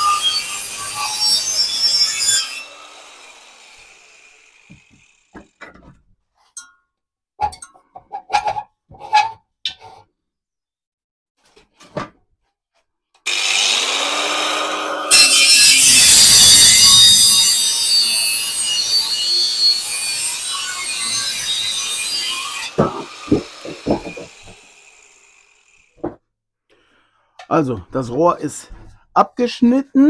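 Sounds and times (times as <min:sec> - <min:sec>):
angle grinder cutting metal: 0:00.0 - 0:05.4, 0:13.3 - 0:26.0
metal knocks: 0:22.7 - 0:24.6.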